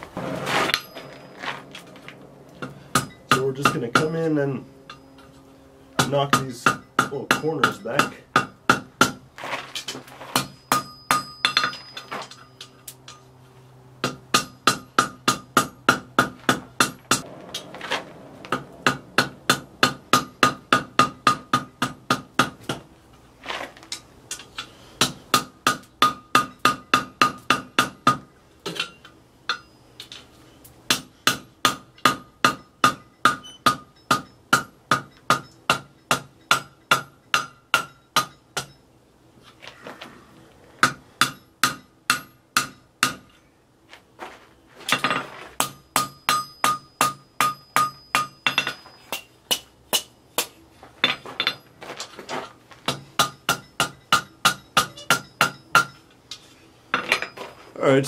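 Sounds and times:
anvil ringing: 0.2s - 2.0s, 2.6s - 5.4s, 6.0s - 9.2s, 10.4s - 13.3s, 14.0s - 22.3s, 28.8s - 29.9s, 30.9s - 38.8s, 45.0s - 50.2s, 51.0s - 51.8s, 52.9s - 56.1s
hammer striking hot steel: 2.6s - 5.4s, 6.0s - 9.2s, 9.8s - 13.2s, 14.0s - 22.8s, 23.9s - 30.2s, 30.9s - 38.8s, 40.8s - 43.4s, 44.9s - 51.6s, 52.9s - 56.1s.

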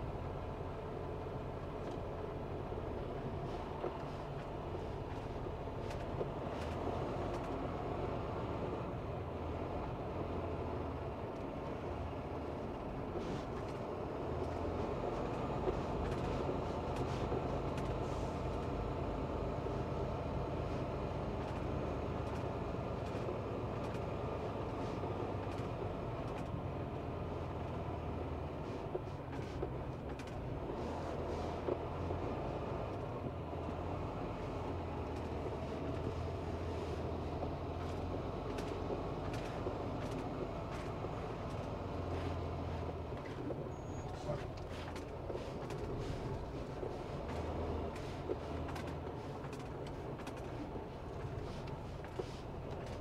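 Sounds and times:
diesel engine hum: 0.0s - 53.0s
light clicks and rattles: 35.0s - 53.0s.

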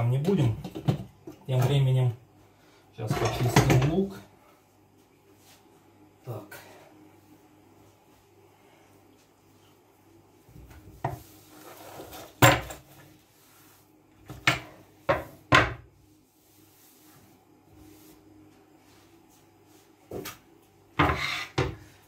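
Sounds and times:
objects knocking on counter: 0.6s - 1.1s, 14.3s - 15.8s
cloth rubbing on worktop: 9.3s - 20.2s.

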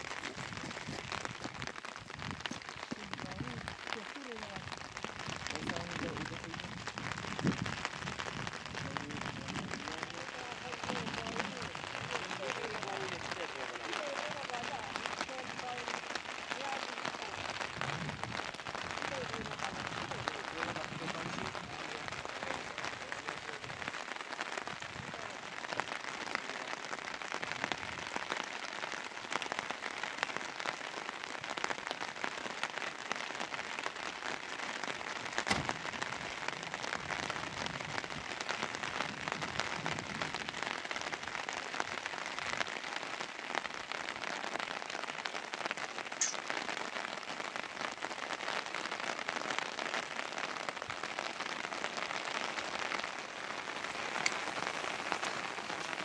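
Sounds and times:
rain pattering: 0.0s - 56.0s
sharp knock: 35.5s - 35.8s.

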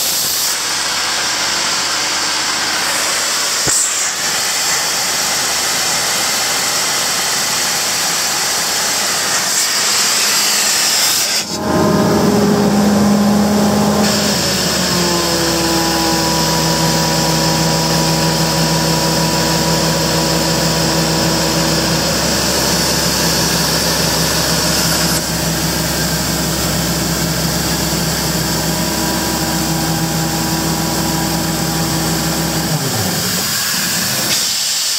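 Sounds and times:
loud steady hiss: 0.0s - 11.6s, 12.4s - 34.9s
diesel air compressor running: 0.0s - 34.9s
steady pitched hum: 11.5s - 33.0s.

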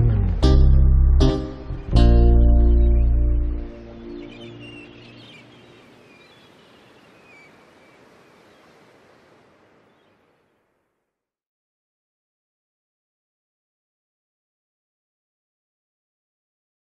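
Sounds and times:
acoustic guitar music: 0.0s - 4.8s
outdoor ambience: 0.0s - 11.1s.

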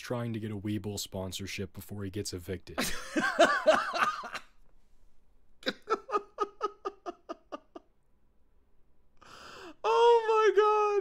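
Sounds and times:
man laughing: 2.8s - 4.5s, 5.6s - 8.0s.

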